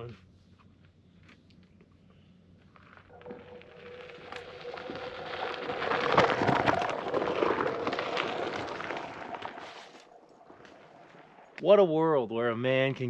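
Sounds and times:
tyre crunching over gravel: 0:02.6 - 0:11.6.

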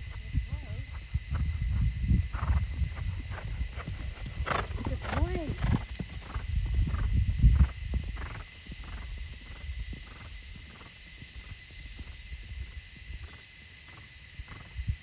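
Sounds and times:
low microphone rumble: 0:00.0 - 0:10.6
horse hoofbeats on sand: 0:00.7 - 0:11.7.

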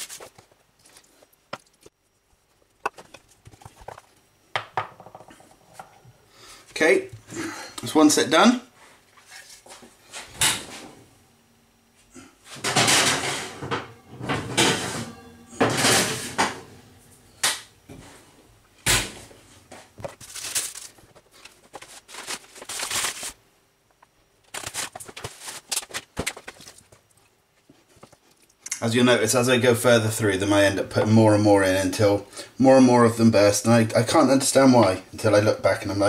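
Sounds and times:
metal baking trays clattering: 0:12.6 - 0:16.9.

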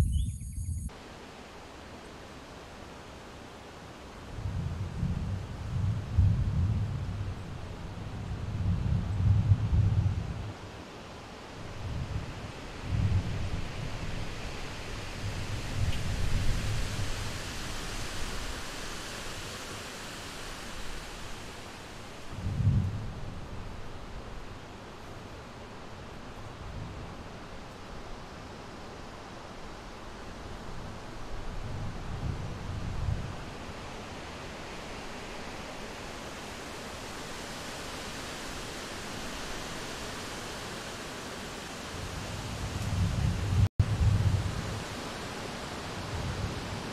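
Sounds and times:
wind buffeting microphone: 0:00.0 - 0:00.9, 0:04.4 - 0:10.5, 0:22.3 - 0:23.9, 0:42.1 - 0:44.9
wind through bushes: 0:00.0 - 0:46.9
steady rushing hiss: 0:10.5 - 0:46.9.

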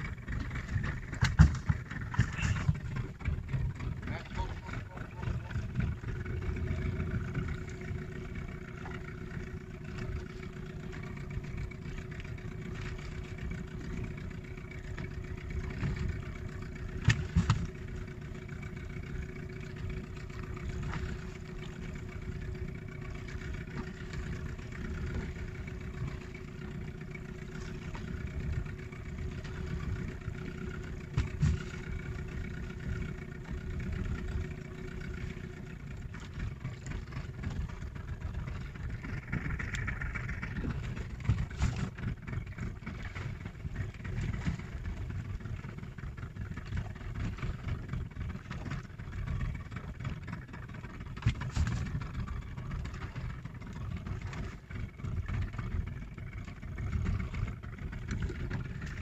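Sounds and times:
boat engine idling: 0:00.0 - 0:59.0.

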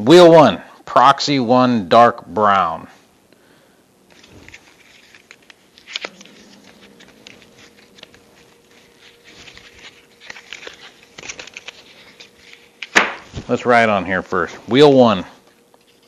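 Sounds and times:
paper rustling and crinkling: 0:04.1 - 0:13.6.

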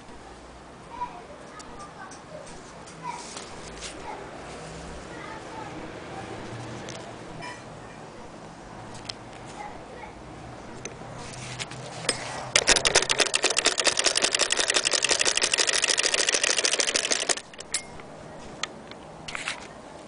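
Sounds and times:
sewing machine clacking: 0:12.5 - 0:18.0.

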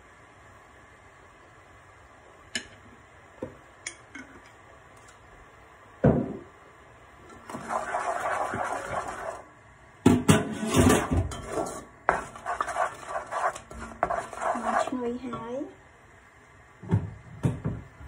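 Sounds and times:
wooden spatula scraping in pot: 0:07.3 - 0:09.4, 0:10.5 - 0:15.2.

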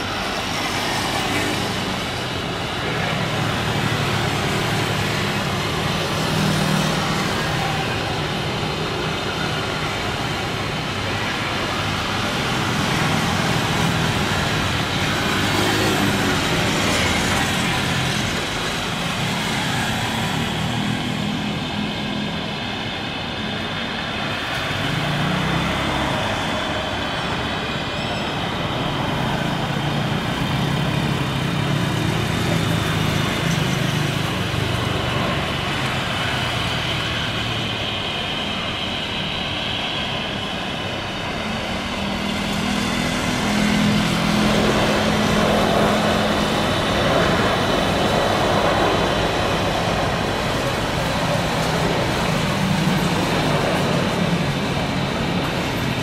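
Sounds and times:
jet engines drone: 0:00.0 - 0:56.0.

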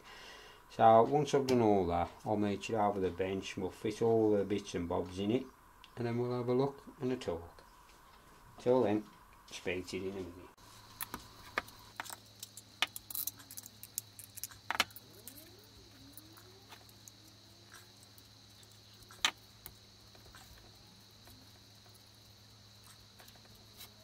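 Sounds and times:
steady electrical hum: 0:00.0 - 0:24.0
metal fittings clicking on wood: 0:11.0 - 0:15.5.

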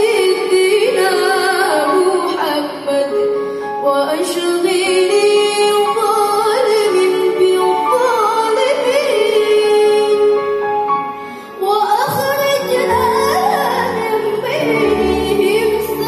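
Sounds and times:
girl singing into a microphone: 0:00.0 - 0:10.4, 0:11.6 - 0:16.0
orchestral accompaniment: 0:12.2 - 0:16.0.

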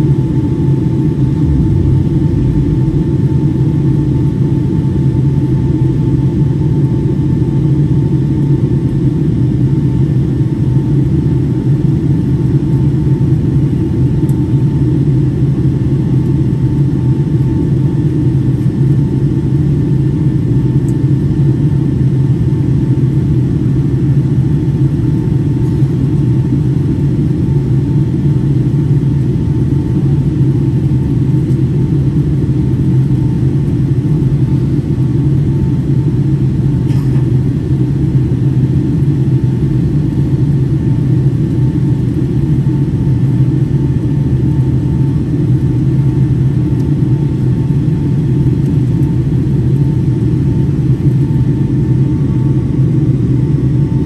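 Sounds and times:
faint steady whine: 0:00.0 - 0:19.1
airplane cabin engine drone: 0:00.0 - 0:54.0.

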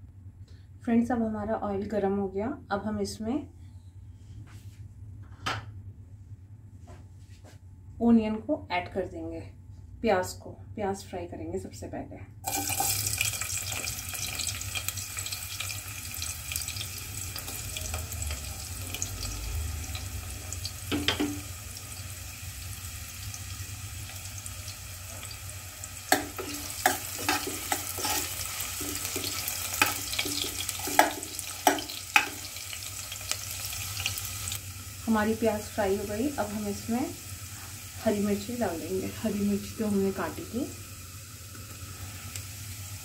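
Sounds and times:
onions sizzling in oil: 0:12.4 - 0:43.0.

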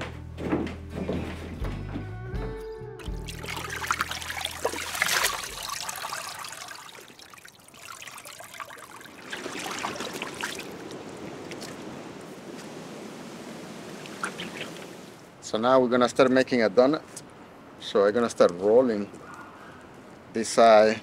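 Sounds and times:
liquid trickling and splashing: 0:03.0 - 0:12.0, 0:13.9 - 0:15.3
wet hide sloshing in a tub: 0:03.0 - 0:12.0
wet hide rustling: 0:03.0 - 0:13.0.

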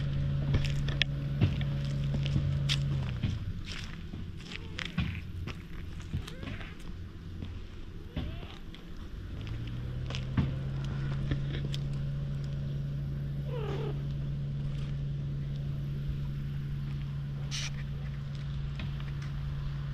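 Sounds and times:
steady low hum: 0:00.0 - 0:19.9
cat meowing: 0:08.1 - 0:08.7, 0:13.5 - 0:14.0.

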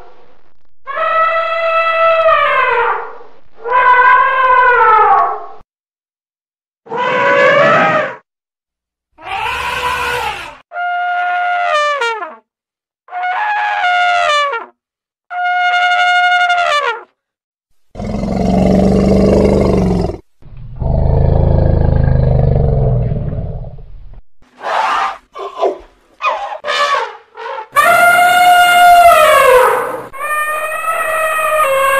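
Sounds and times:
elephant trumpeting: 0:24.6 - 0:31.9.

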